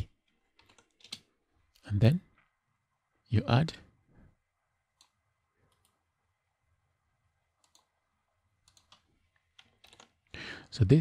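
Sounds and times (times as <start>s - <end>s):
computer mouse clicks: 0.5s - 1.3s, 4.9s - 6.0s, 7.6s - 7.9s, 8.6s - 10.2s.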